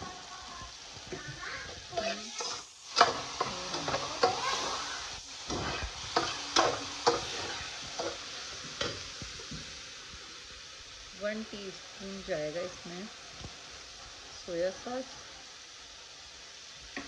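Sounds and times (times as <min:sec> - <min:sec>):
frying sizzle: 0:00.0 - 0:17.0
spatula scraping metal pan: 0:05.5 - 0:08.2.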